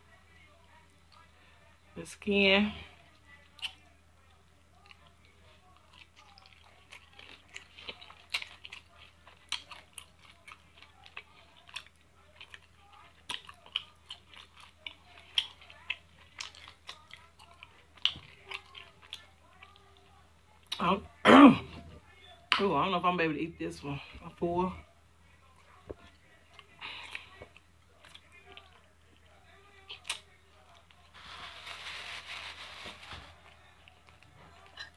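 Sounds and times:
person chewing and biting: 5.7 - 19.8.

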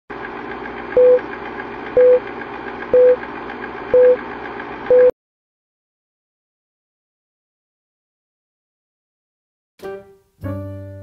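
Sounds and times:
film projector whirring: 0.1 - 5.1
short countdown beeps: 1.0 - 1.2, 2.0 - 2.2, 3.0 - 3.2, 4.0 - 4.2, 4.9 - 5.1.

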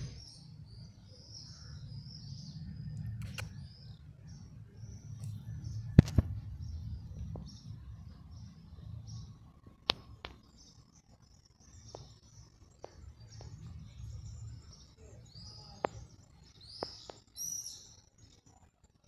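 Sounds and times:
birds chirping and calling: 0.0 - 9.4, 10.1 - 18.5
low background rumble: 0.0 - 19.0
sharp clicks: 3.0 - 3.6.

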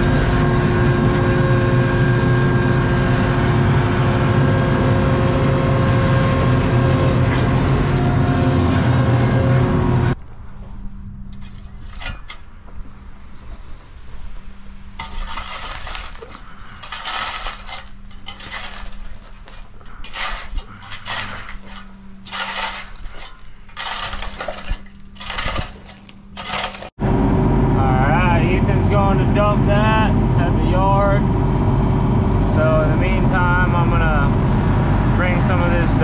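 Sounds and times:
skid steer engine running: 0.0 - 10.2, 16.2 - 36.0
steady low hum: 0.0 - 36.0
hand hoe scraping dirt: 11.3 - 13.8, 14.9 - 27.0.

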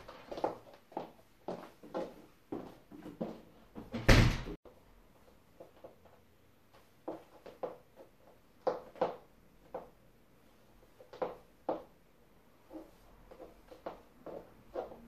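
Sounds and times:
high heels clicking on floor: 0.0 - 3.9, 5.5 - 10.0, 10.9 - 12.0.

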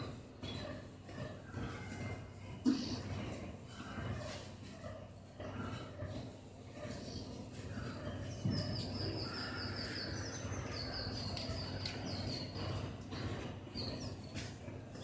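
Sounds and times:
bird chirping: 6.9 - 14.4.

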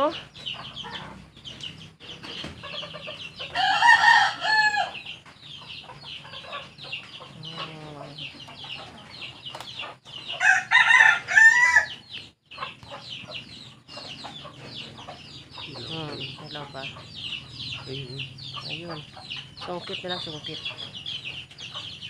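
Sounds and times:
chickens clucking and chirping: 0.0 - 22.0
rooster crowing: 3.6 - 5.0, 10.4 - 12.0.

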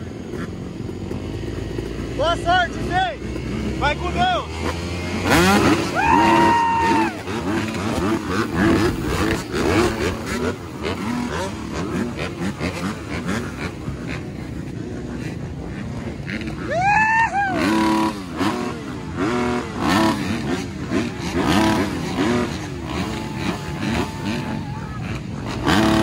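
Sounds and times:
motorcycles revving: 0.0 - 26.0.

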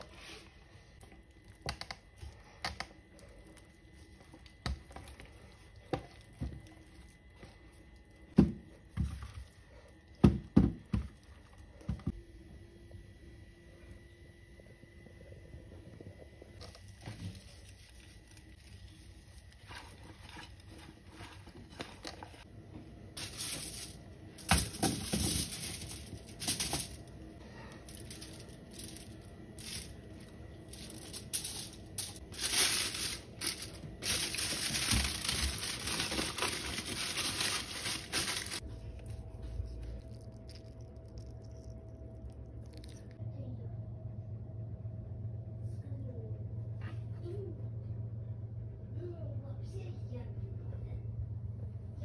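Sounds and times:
aluminium foil crinkling: 16.6 - 22.4, 23.2 - 43.2.

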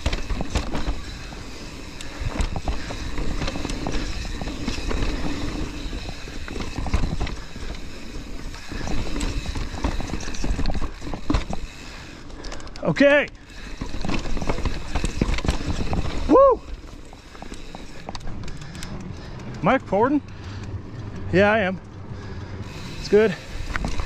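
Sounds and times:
mountain bike knocks and rattles: 0.0 - 19.8, 23.5 - 24.0.

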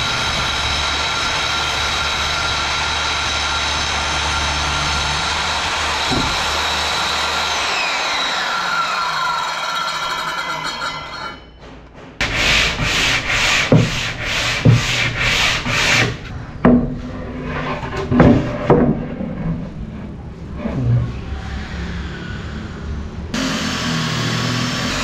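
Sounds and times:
circular saw winding down: 0.0 - 11.4, 23.3 - 25.0
rubbing strokes on wood: 12.2 - 16.3.

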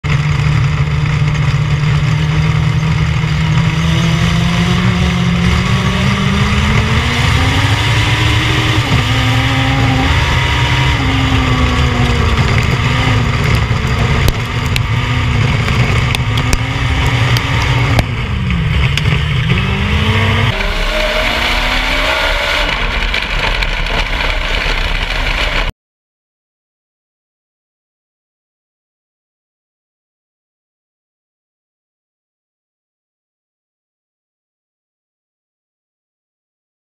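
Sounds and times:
race car engine revving: 0.1 - 25.7.

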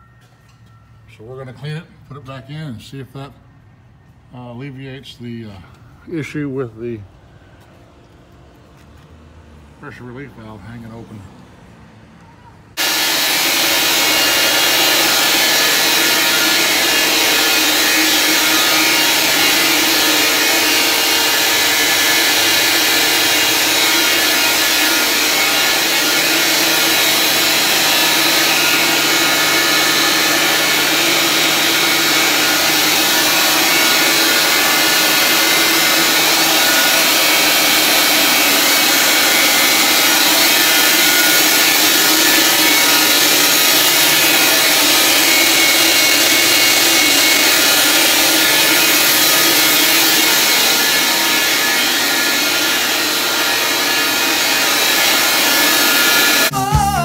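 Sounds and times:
electric pumps running: 12.8 - 56.6.

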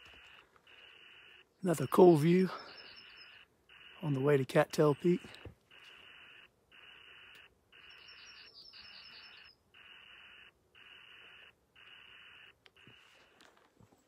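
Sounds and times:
high rapid bird trill: 0.7 - 12.5
footsteps on dirt trail: 12.8 - 14.0.

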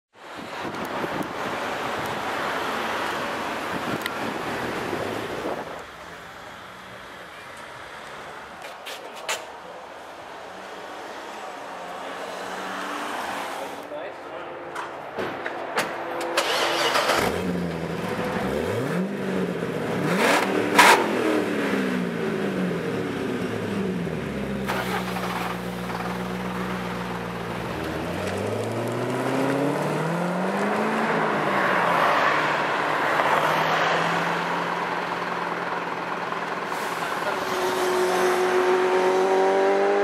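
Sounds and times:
car engine revving and idling: 16.4 - 40.0
exhaust cracks: 24.6 - 29.9.

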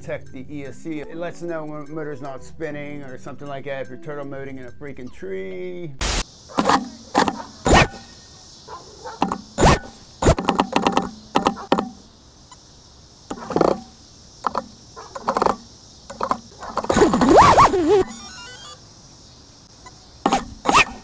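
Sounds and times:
quadcopter motors bursting: 6.0 - 8.3, 9.2 - 11.8, 13.3 - 18.8, 20.2 - 21.0.

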